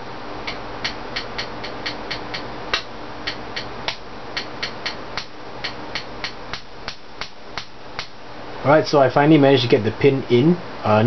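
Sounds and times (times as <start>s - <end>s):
hammer tapping a pin: 0.5s - 8.1s.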